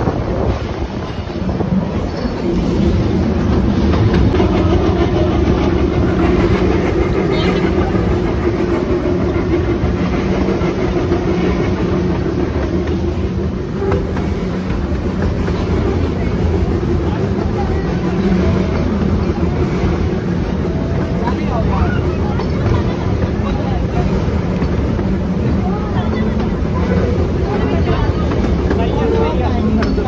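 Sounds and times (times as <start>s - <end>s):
train rolling on rails: 0.0s - 30.0s.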